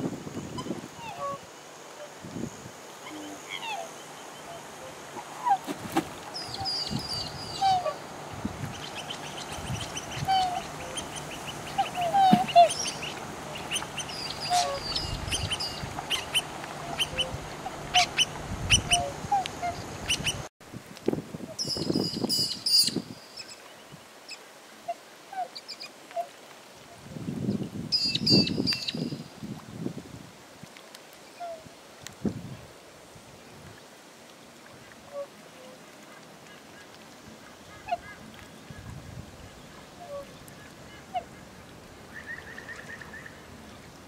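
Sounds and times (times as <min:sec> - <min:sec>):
swans honking: 0:00.5 - 0:01.4, 0:03.0 - 0:20.5, 0:39.7 - 0:43.3.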